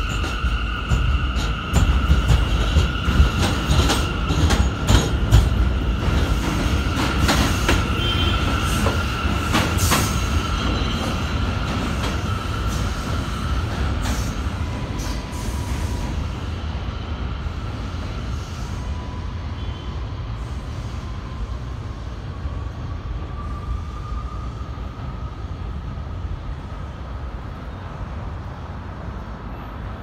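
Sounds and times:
train wheels rumbling and clacking: 0.0s - 19.5s
train wheels squealing: 0.0s - 25.9s.

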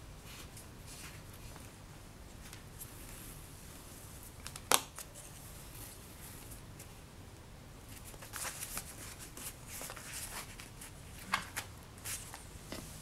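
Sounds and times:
paper rustling and scraping: 7.9s - 13.0s.

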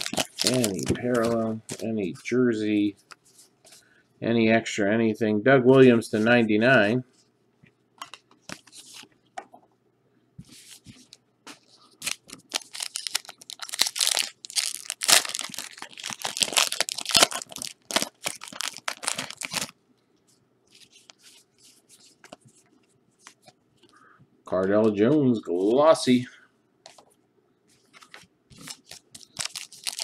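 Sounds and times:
wrapper tearing and crinkling: 0.0s - 1.5s, 12.0s - 19.7s, 28.6s - 30.0s.

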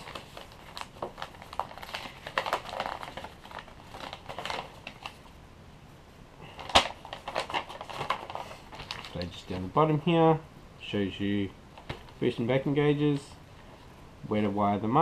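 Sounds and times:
paper crinkling and rustling: 0.0s - 5.3s, 6.4s - 9.7s.

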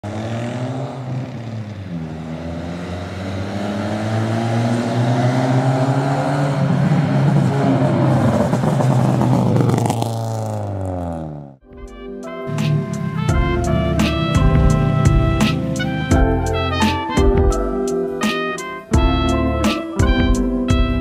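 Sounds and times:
car engine approaching: 0.0s - 11.6s, 12.4s - 16.1s.

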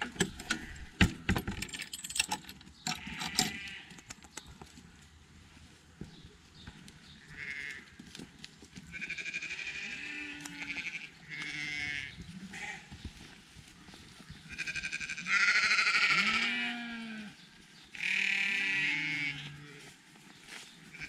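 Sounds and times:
goats bleating: 7.2s - 7.8s, 8.9s - 12.9s, 14.5s - 17.4s, 18.0s - 19.9s.

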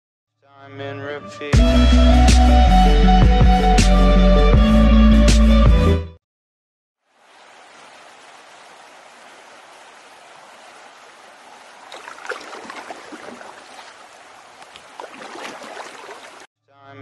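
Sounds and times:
flowing water rushing: 7.0s - 16.5s
water splashes and drips: 7.1s - 16.5s.

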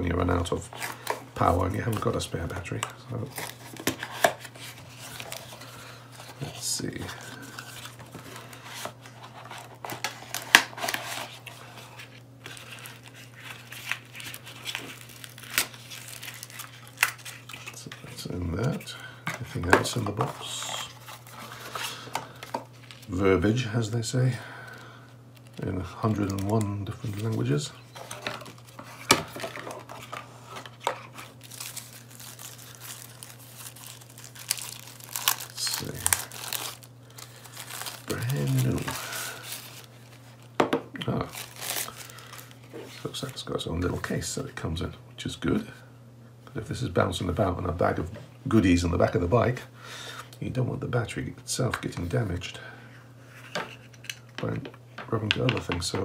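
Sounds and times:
plastic wrap crinkling: 0.5s - 23.6s, 24.6s - 43.4s.

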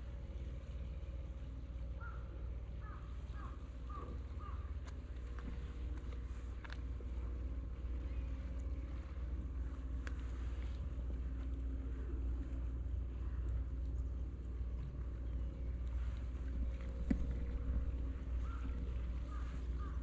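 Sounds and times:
wind rumbling on microphone: 3.4s - 20.0s
crow cawing: 4.4s - 4.6s, 18.4s - 20.0s.

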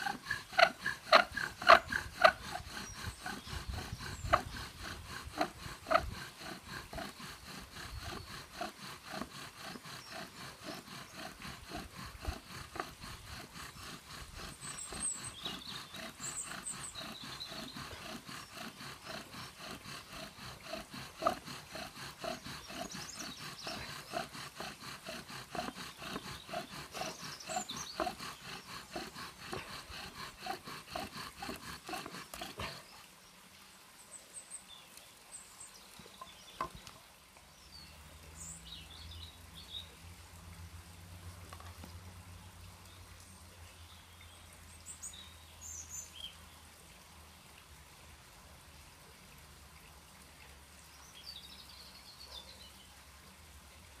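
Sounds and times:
bow drill spindle grinding and squeaking: 0.0s - 32.7s.

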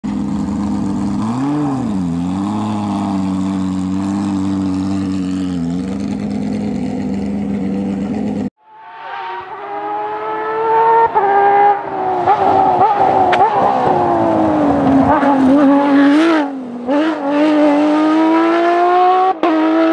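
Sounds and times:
car engine idling: 0.0s - 8.5s
car engine at full throttle: 0.0s - 19.9s.

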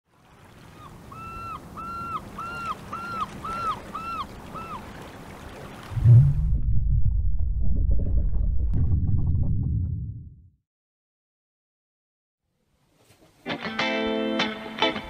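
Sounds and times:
sea waves: 0.0s - 6.7s
gull calling: 0.7s - 5.0s
loud low rumble: 5.9s - 10.5s.

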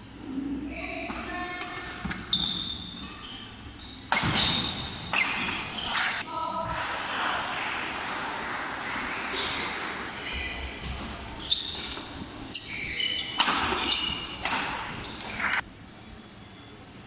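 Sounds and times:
rackets hitting shuttlecock: 4.1s - 6.2s, 9.2s - 12.2s, 13.0s - 15.6s
shoes squeaking on wooden floor: 9.1s - 15.2s.

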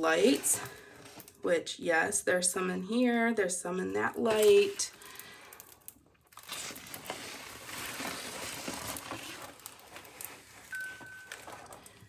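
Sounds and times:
plastic film crinkling: 4.0s - 12.0s.

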